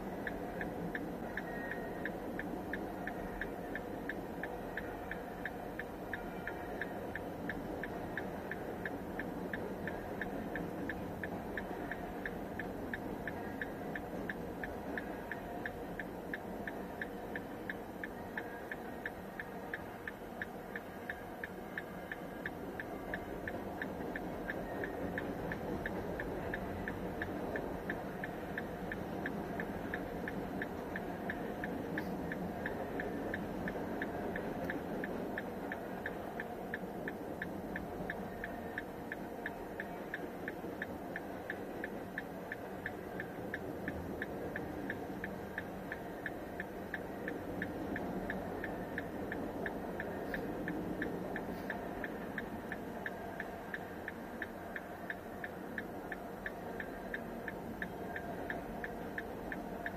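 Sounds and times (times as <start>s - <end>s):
crossing bell dinging: 0.1s - 8.9s.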